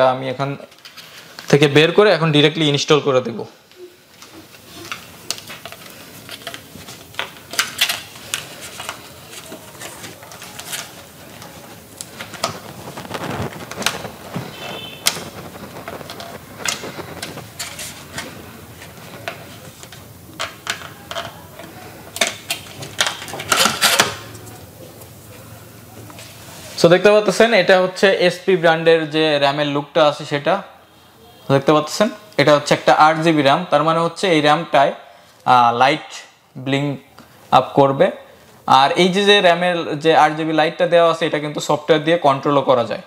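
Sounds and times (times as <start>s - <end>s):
packaging crinkling: 4.1s - 25.5s.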